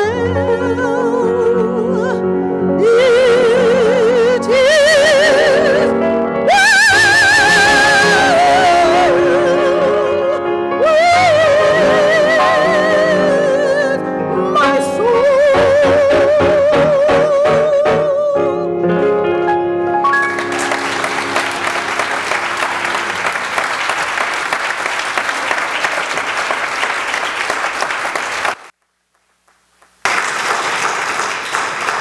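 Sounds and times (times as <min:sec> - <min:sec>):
woman singing with vibrato: 0:00.0 - 0:18.7
grand piano chords: 0:00.0 - 0:24.3
audience applause: 0:20.2 - 0:28.7, 0:30.0 - 0:32.0.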